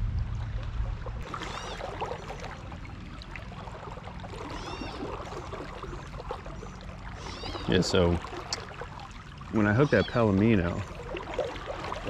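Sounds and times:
creek water trickling: 0:00.0 - 0:12.0
high bird calls: 0:04.4 - 0:05.1, 0:05.9 - 0:07.9, 0:09.6 - 0:10.8.

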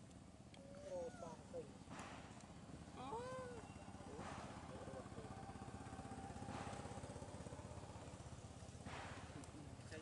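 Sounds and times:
distant small engine pulsing: 0:01.8 - 0:10.0.

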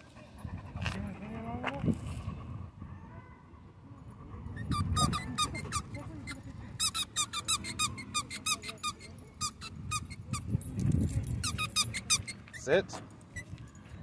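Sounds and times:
squeaky toy squeaking: 0:04.6 - 0:13.6.

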